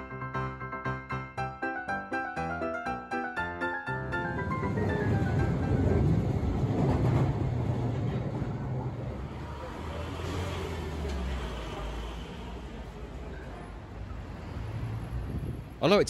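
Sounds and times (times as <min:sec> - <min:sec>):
underground train rumbling: 0:03.3 - 0:15.8.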